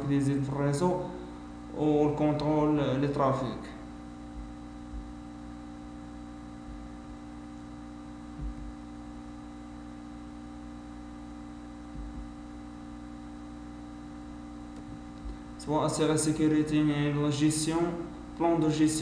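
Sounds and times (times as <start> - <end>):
electrical hum with hiss: 0.0 - 19.0
faint low bumps: 4.1 - 9.4, 11.8 - 12.6.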